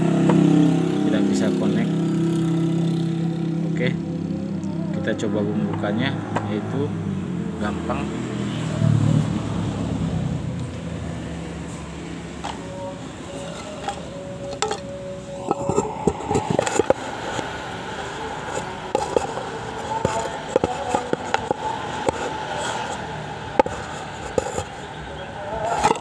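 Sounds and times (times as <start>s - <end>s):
steady hum: 12.3s - 26.0s
hand tools clicking and scraping: 12.4s - 26.0s.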